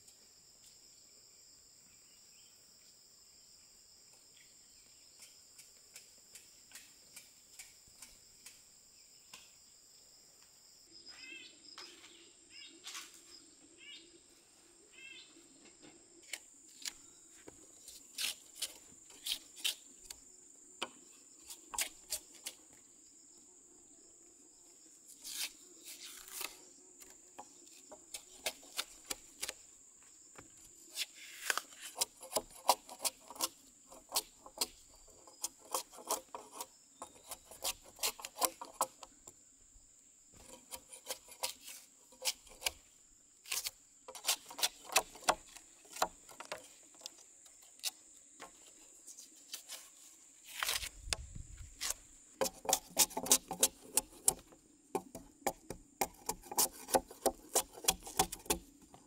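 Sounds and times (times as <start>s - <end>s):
high insect drone: 0.0s - 59.0s
knife chopping and scraping bark: 17.8s - 22.8s, 25.1s - 29.7s, 30.3s - 39.4s, 40.3s - 59.0s.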